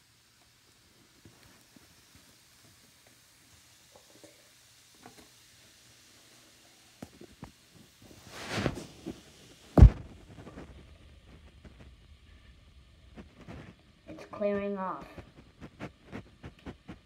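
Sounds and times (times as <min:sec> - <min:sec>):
mould thumping down in sink: 0:09.8 - 0:10.7.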